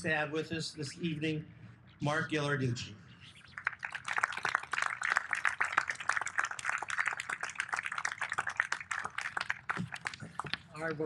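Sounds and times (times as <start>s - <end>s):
audience applauding: 3.6s - 10.5s.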